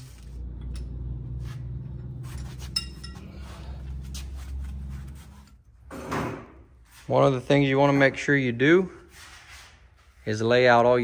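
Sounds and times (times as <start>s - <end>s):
steady low hum: 0.0s - 7.4s
metallic clink: 2.3s - 3.5s.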